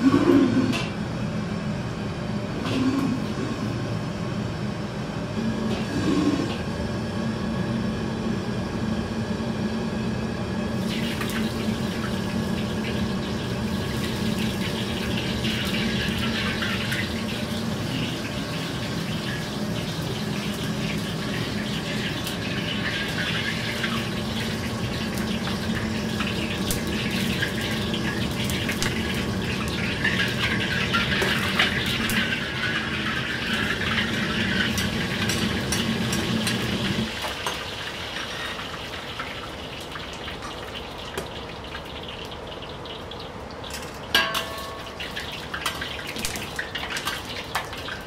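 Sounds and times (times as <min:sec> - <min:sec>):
wok burner roar: 0:00.0 - 0:48.0
egg frying in hot oil: 0:10.6 - 0:48.0
liquid sizzling in a wok: 0:10.7 - 0:48.0.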